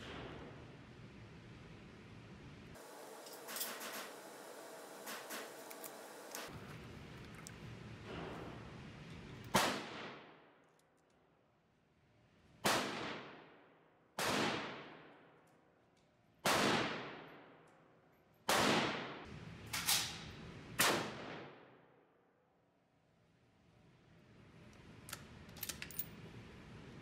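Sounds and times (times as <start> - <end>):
rifle shots echoing: 9.5 - 10.4, 16.4 - 17.5, 18.5 - 19.3.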